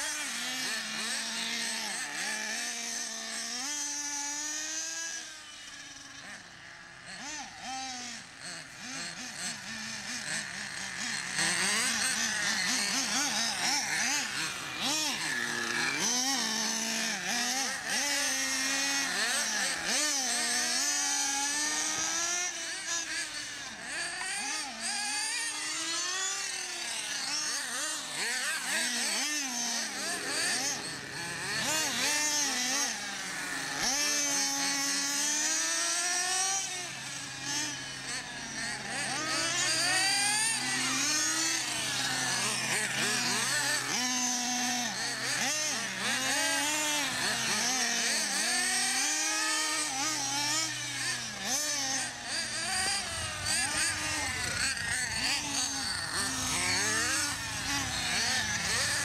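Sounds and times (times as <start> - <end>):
radio-controlled car engines revving: 0.0 - 59.0.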